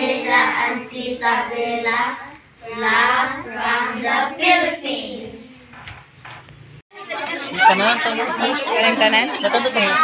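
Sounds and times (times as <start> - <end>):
children singing in unison: 0.0 - 5.6.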